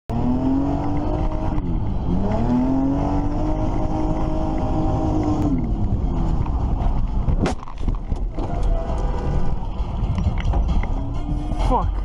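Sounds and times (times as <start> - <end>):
car engine from inside cabin: 0.1 - 6.9.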